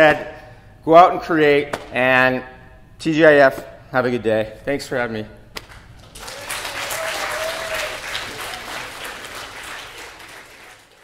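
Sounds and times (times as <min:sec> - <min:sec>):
audience applauding: 0:06.0 - 0:11.0.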